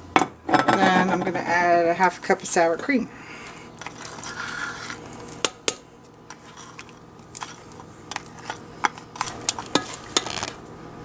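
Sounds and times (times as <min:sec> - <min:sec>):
spatula scraping bowl: 0:01.9 - 0:05.4, 0:06.3 - 0:10.6.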